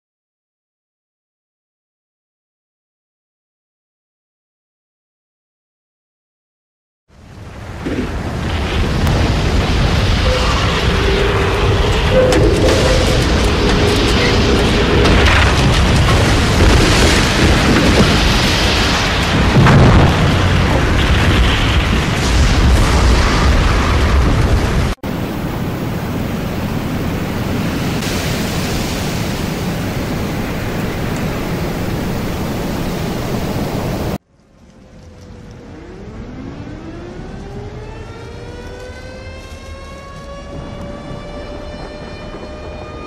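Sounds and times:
storm wind rushing: 0:07.2 - 0:34.2, 0:39.7 - 0:43.0
heavy low rumbles: 0:07.4 - 0:34.2.

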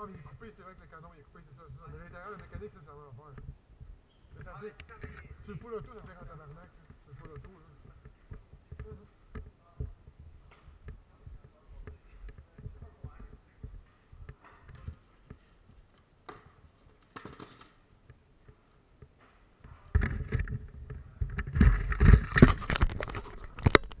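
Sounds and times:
rustling and scraping camera handling: 0:01.8 - 0:24.0.

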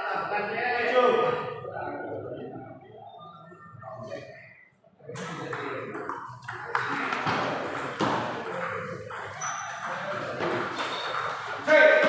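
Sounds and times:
ball bouncing on table: 0:05.2 - 0:11.4
ball clicking off paddles: 0:05.2 - 0:11.7.

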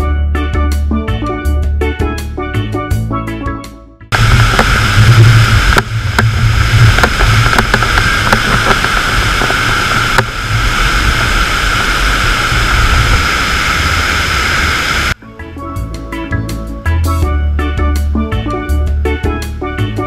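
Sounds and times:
waterfall rushing: 0:04.1 - 0:15.2
wind buffeting microphone: 0:04.1 - 0:15.2
droplets ticking on microphone: 0:04.2 - 0:14.1.

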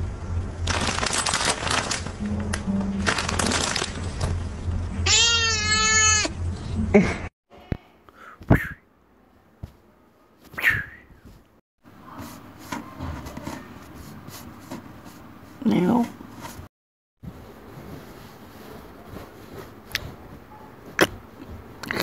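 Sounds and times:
cat meowing: 0:05.1 - 0:06.3.

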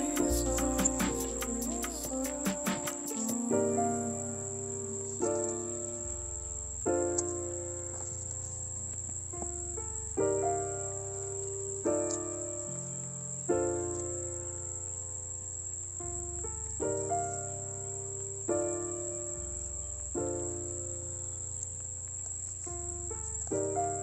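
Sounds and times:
steady high-pitched tone: 0:00.0 - 0:03.8
mellow instrumental music: 0:00.0 - 0:04.2.

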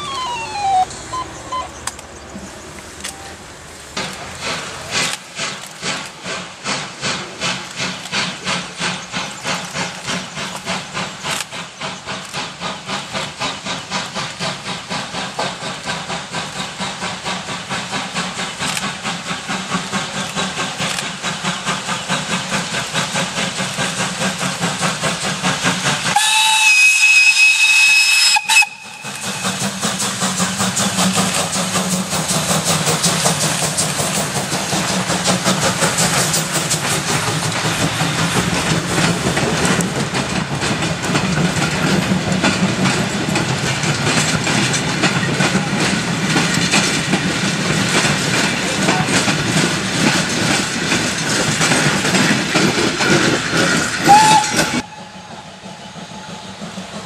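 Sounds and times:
steam whistle blast: 0:00.0 - 0:01.8, 0:26.1 - 0:29.7, 0:54.0 - 0:56.0
steam locomotive chuffing: 0:00.0 - 0:57.0.

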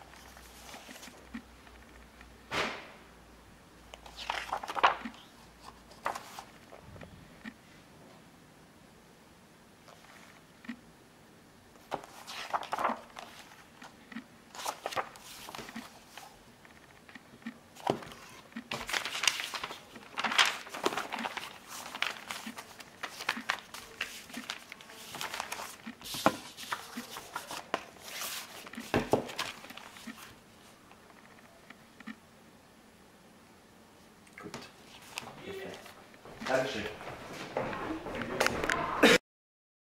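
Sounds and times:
paper rustling and pages turning: 0:00.0 - 0:02.2, 0:03.9 - 0:07.1, 0:09.8 - 0:10.4, 0:11.8 - 0:17.2, 0:17.8 - 0:31.6, 0:34.4 - 0:36.6.

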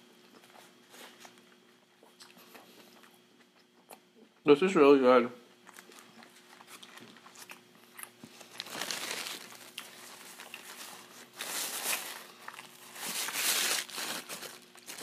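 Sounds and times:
chewing with wet mouth clicks: 0:01.2 - 0:04.2, 0:05.6 - 0:08.3
paper wrapper crinkling: 0:08.4 - 0:15.0.

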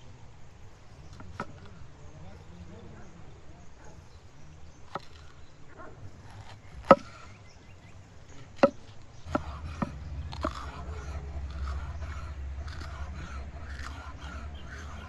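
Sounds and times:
knife chopping on wooden board: 0:06.4 - 0:07.2, 0:08.6 - 0:15.0
low rumble: 0:09.1 - 0:15.0.

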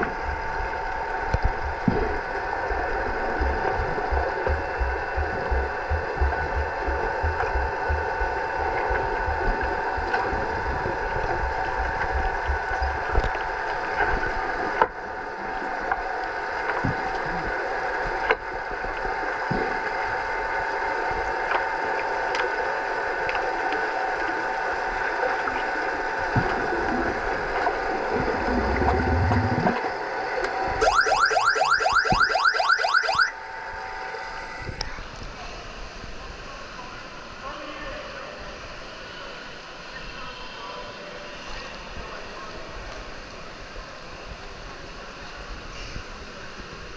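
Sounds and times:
low rumble: 0:00.0 - 0:13.4, 0:26.4 - 0:29.9
churning water wash: 0:00.0 - 0:35.6
underwater hum of fixed tones: 0:00.0 - 0:46.9
quick low pulses: 0:03.2 - 0:10.8.

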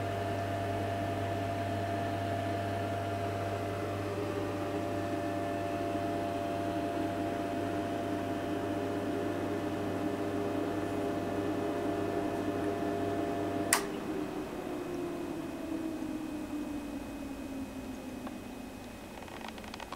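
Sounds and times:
mains hum: 0:00.0 - 0:19.9
switch click: 0:13.7 - 0:13.9
electronics whine: 0:14.0 - 0:19.9.

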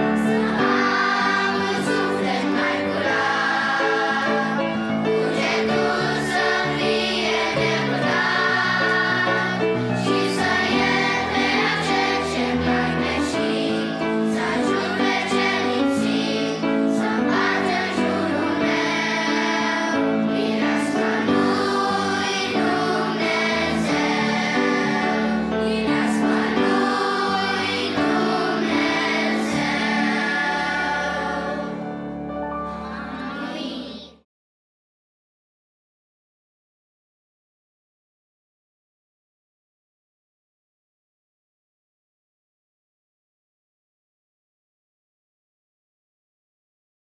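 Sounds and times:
children's choir singing a hymn: 0:00.0 - 0:34.2
piano accompaniment: 0:00.0 - 0:34.2.

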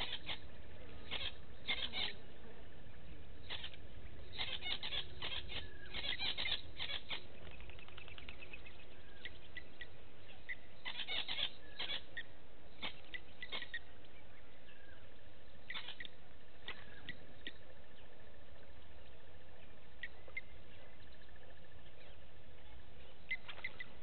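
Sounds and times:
low steady rumble: 0:00.0 - 0:24.0
animal high chirps: 0:01.1 - 0:02.2, 0:03.5 - 0:07.2, 0:10.5 - 0:13.8, 0:15.7 - 0:16.1.

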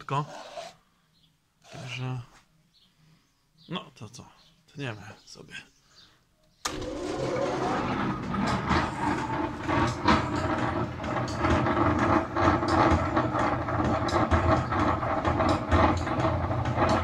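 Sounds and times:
machine rattling: 0:06.7 - 0:17.0.

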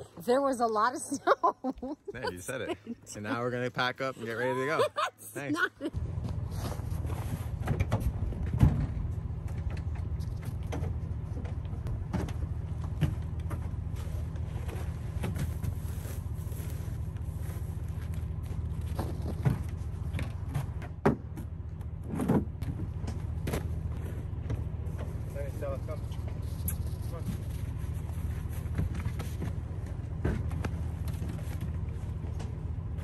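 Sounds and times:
truck engine idling: 0:01.9 - 0:22.1.

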